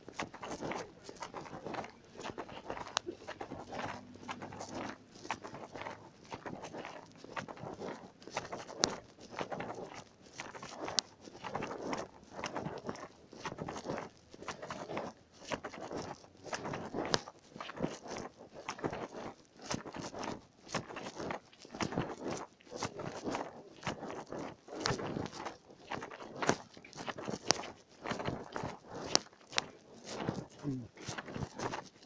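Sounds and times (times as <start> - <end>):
footsteps on slushy pavement: 0.0 - 17.8.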